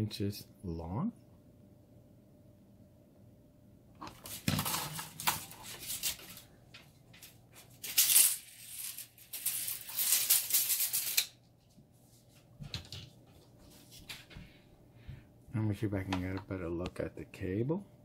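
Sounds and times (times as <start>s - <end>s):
cable and tape measure rustling: 4.0s - 12.5s.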